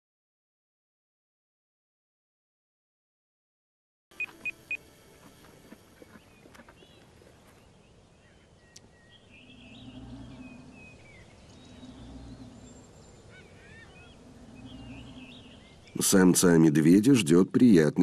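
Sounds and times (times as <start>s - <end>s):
bird calls: 4.2s - 16.4s
bear snoring: 9.3s - 16.0s.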